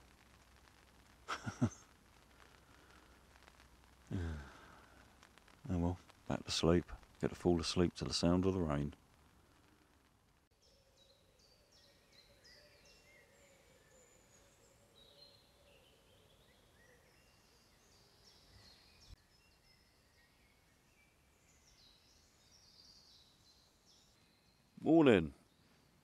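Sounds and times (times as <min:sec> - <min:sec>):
faint steady hum: 0:00.0 - 0:26.0
birds chirping and trilling: 0:10.6 - 0:26.0.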